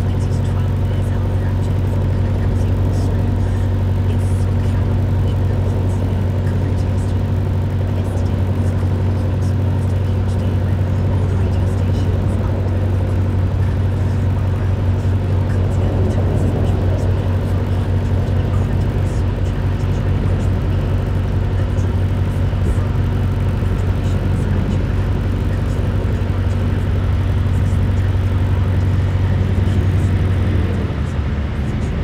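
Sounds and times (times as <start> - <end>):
boat engine low drone: 0.0 - 32.0.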